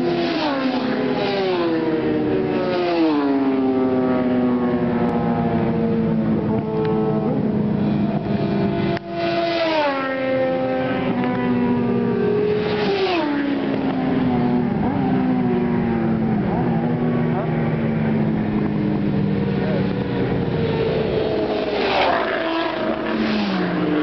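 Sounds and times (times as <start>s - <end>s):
motorcycles riding past: 0.0s - 24.0s.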